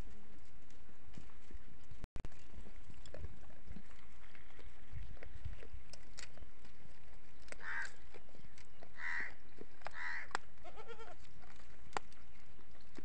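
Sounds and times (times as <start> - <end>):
dry twigs crackling and snapping: 4.0 - 10.6, 11.2 - 13.0
goats bleating: 9.0 - 11.3.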